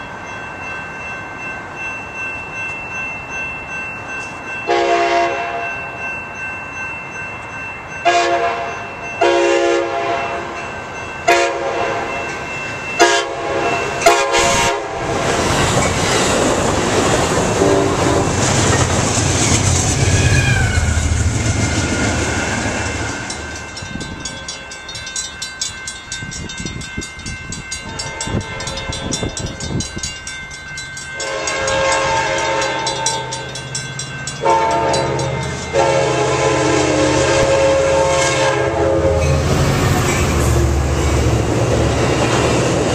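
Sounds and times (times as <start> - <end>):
crossing bells ringing: 0.0 - 42.9
train rumbling past: 0.0 - 42.9
train air horn blasts: 4.7 - 5.6, 8.0 - 10.6, 11.3 - 12.1, 13.0 - 15.1, 27.9 - 28.8, 31.2 - 33.3, 34.4 - 39.3.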